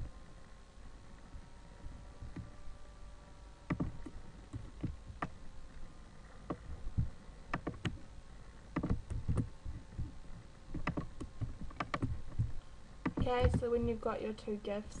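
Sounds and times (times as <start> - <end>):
faint room noise: 0.0 - 15.0
computer mouse clicks: 3.7 - 5.4, 6.4 - 8.1, 8.7 - 13.6.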